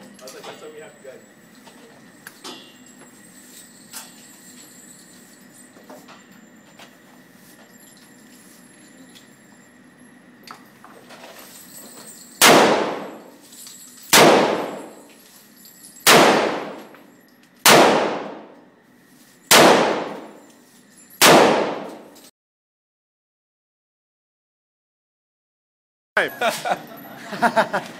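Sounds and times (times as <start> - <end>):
revolver shots echoing: 12.4 - 13.3, 14.2 - 15.0, 16.1 - 16.9, 17.7 - 18.6, 19.5 - 20.4.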